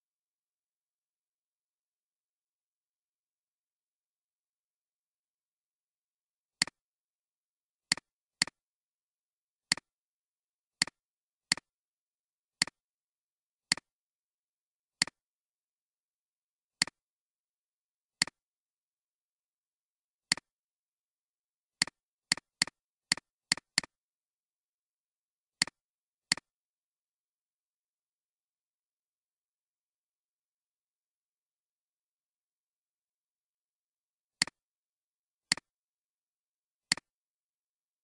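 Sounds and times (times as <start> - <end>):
computer mouse clicking: 35.5 - 35.7, 36.9 - 37.1.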